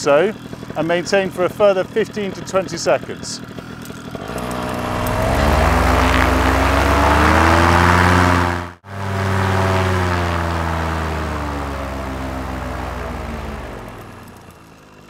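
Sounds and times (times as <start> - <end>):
paramotor engine and propeller revving: 0.0 - 15.0.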